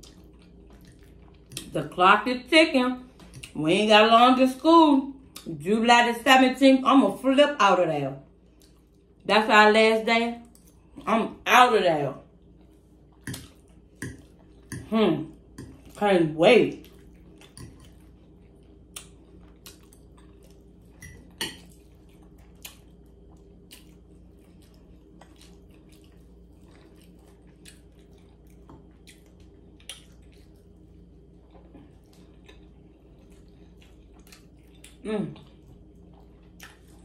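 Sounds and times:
person chewing food: 0.0 - 1.7, 8.4 - 9.2, 12.3 - 16.0, 16.8 - 37.0.

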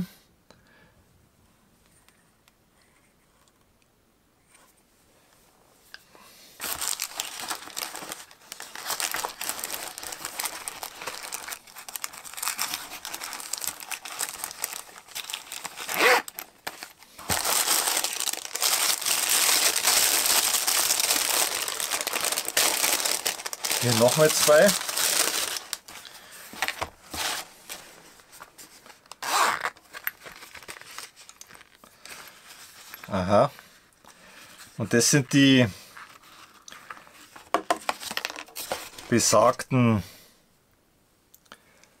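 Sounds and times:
tissue paper crinkling: 6.6 - 33.2, 35.9 - 39.1.

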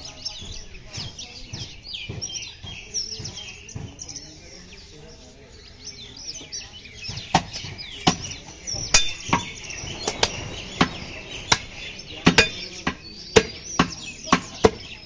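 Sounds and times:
butcher's knife chopping meat on wood: 10.2 - 15.0.

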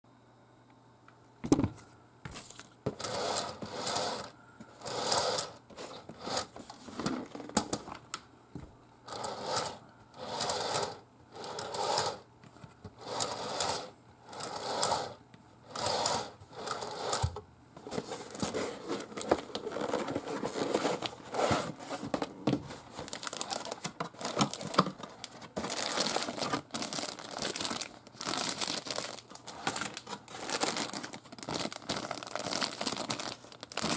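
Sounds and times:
cardboard box scraping and rustling: 17.8 - 24.8
plastic bags crinkling: 18.0 - 33.9.

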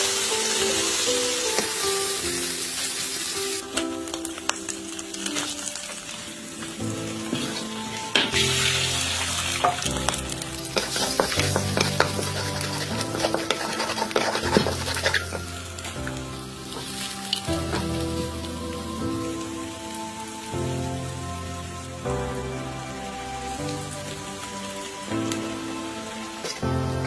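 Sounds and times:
background music sustained notes: 0.0 - 27.0
stir-fry sizzling in wok: 0.0 - 27.0
spatula scraping wok: 7.1 - 18.2.

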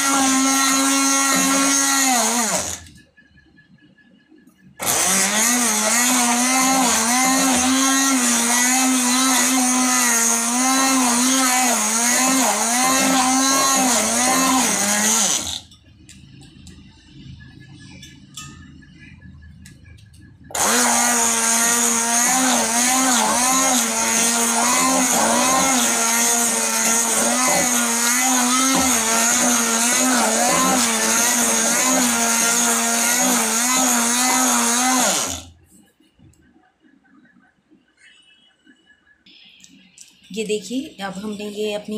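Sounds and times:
stick blender motor running: 0.0 - 2.9, 4.8 - 15.7, 20.5 - 35.5.

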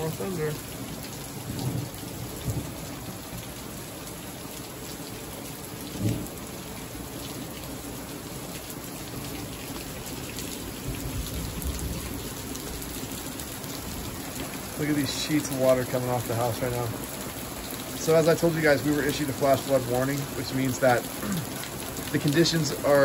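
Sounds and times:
heavy rain pouring: 0.0 - 23.0
thunder rumbling: 1.4 - 2.9.

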